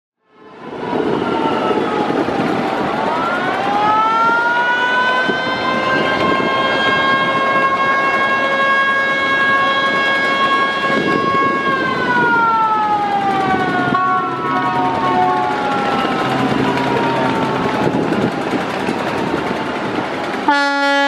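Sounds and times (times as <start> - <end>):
boat horn blast: 4.6 - 11.9, 12.7 - 17.7, 20.5 - 21.0.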